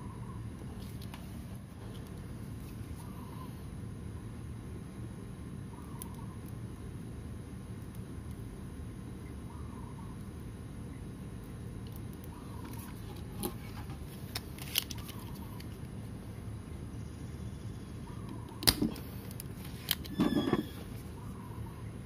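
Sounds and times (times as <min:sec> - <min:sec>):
low background noise: 0:00.0 - 0:22.0
desoldering pump snap: 0:18.5 - 0:20.1.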